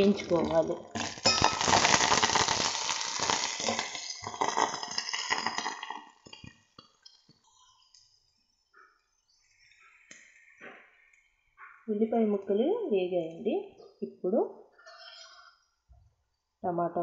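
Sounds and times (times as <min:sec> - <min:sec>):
onions sizzling in hot oil: 0:00.0 - 0:06.4.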